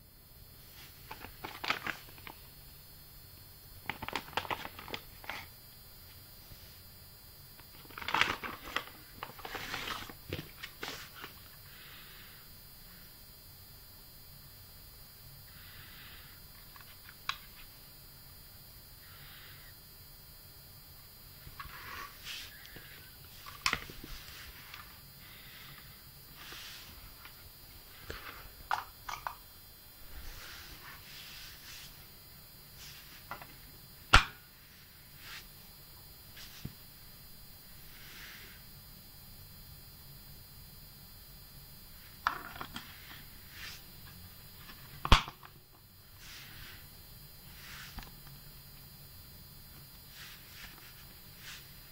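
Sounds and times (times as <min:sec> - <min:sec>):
plastic charger rustling: 0:00.9 - 0:02.4, 0:03.8 - 0:05.5, 0:07.6 - 0:11.4, 0:21.6 - 0:25.0, 0:28.0 - 0:29.4.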